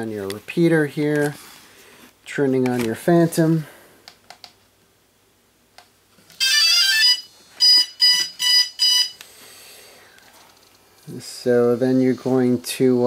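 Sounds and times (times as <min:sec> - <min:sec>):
short beeps: 0:07.0 - 0:09.2.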